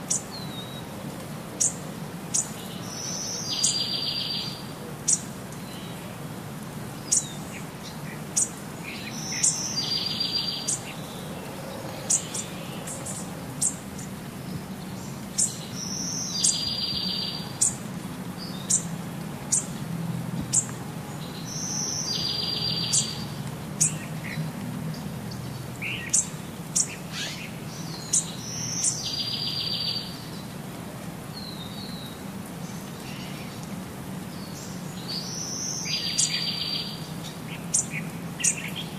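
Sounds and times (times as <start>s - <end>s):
birds chirping: 7.0s - 18.9s, 20.5s - 30.6s.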